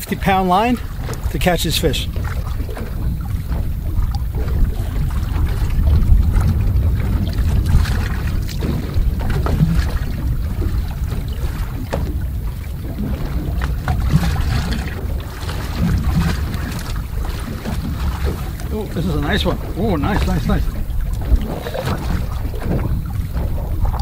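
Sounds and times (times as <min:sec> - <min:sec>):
boat noise: 0:00.0 - 0:24.0
sea: 0:00.0 - 0:24.0
wind rumble on microphone: 0:00.7 - 0:24.0.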